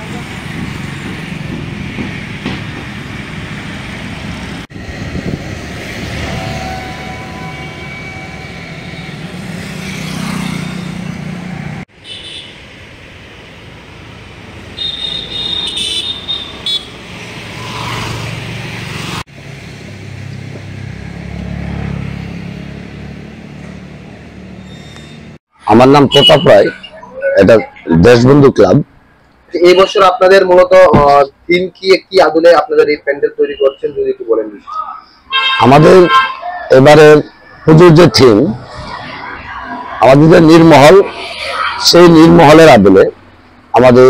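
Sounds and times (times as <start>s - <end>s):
vehicles passing with low rumble: 0.0s - 44.0s
car horn toots: 12.0s - 12.6s, 14.8s - 17.0s, 26.0s - 26.9s, 35.3s - 36.5s.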